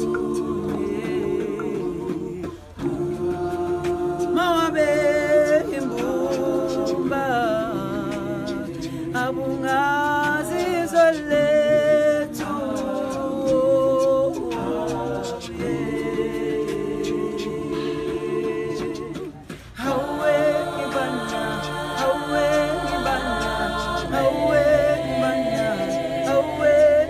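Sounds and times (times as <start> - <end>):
group singing a cappella: 0.0 - 27.0.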